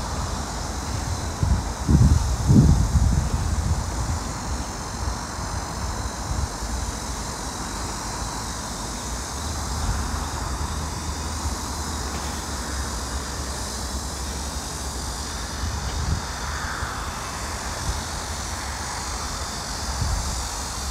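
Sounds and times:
hiss: 0.0 - 20.9.

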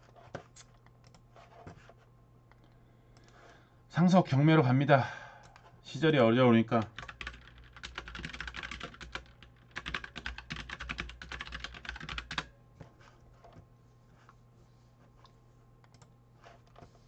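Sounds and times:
computer keyboard typing: 6.8 - 12.5.

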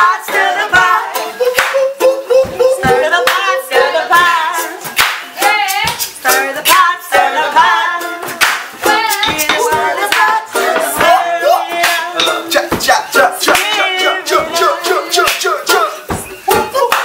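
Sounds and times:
people singing: 0.0 - 17.0
ukulele strumming: 0.0 - 17.0
hand claps: 1.5 - 1.9, 3.2 - 3.5, 4.9 - 6.8, 8.3 - 10.4, 11.8 - 12.3, 13.5 - 13.8, 15.2 - 15.6, 16.5 - 17.0.

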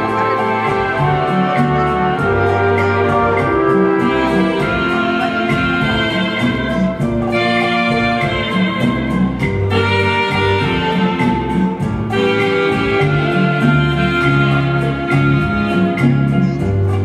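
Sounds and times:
slow rumba dance music: 0.0 - 17.0.

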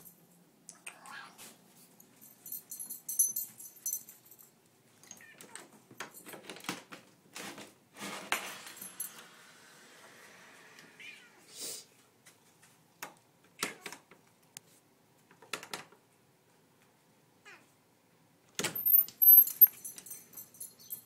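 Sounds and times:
cat meowing: 0.9 - 1.4, 11.0 - 11.5.

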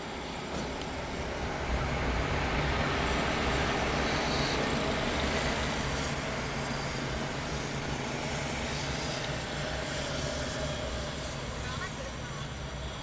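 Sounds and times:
jet engines rumbling: 0.0 - 13.0.

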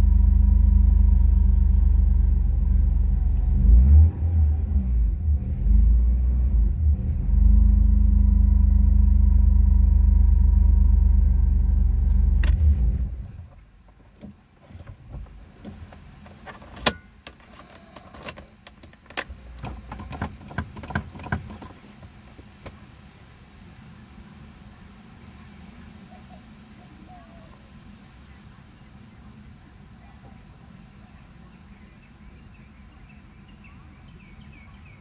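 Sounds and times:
car engine idling: 0.0 - 23.2.

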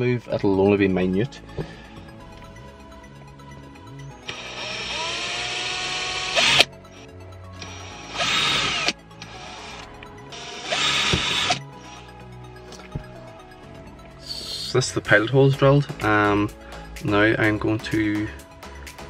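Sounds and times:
quiet background music: 0.0 - 19.0
cordless drill boring holes: 4.2 - 6.7, 7.6 - 11.6.

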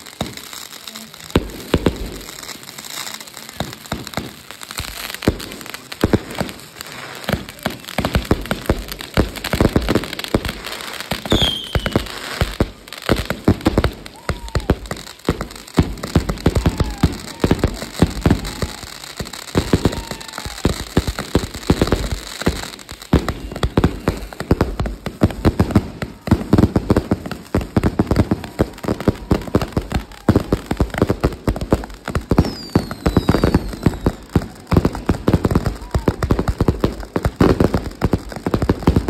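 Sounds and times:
fireworks crackling and banging: 0.0 - 39.0
firework whistles: 8.4 - 12.6, 13.3 - 26.4, 32.0 - 36.2.

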